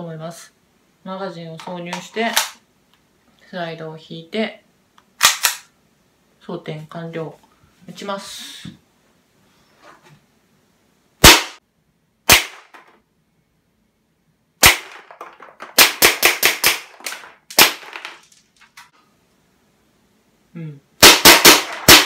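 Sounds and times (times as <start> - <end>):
airsoft pistol shots: 11.2 - 11.6, 12.3 - 12.8, 14.6 - 17.9, 21.0 - 22.0.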